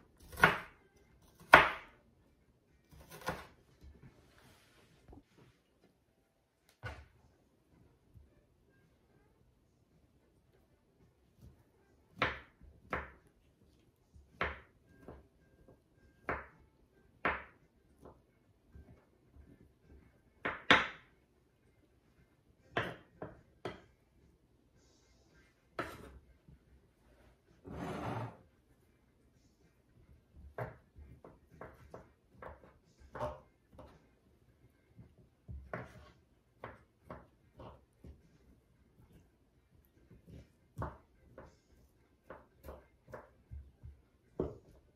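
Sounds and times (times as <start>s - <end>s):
knife chopping on wooden board: 0.2s - 0.7s, 1.3s - 2.0s, 2.9s - 3.6s, 35.5s - 38.2s.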